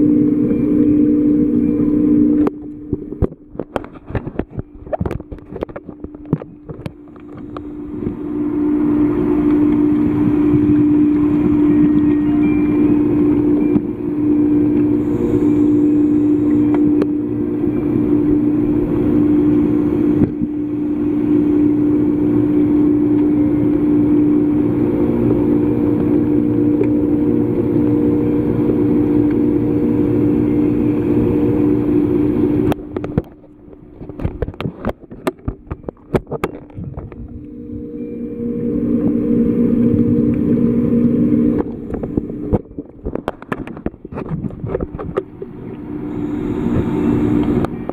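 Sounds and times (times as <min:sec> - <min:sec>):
underwater machine hum: 0:00.0 - 0:47.9.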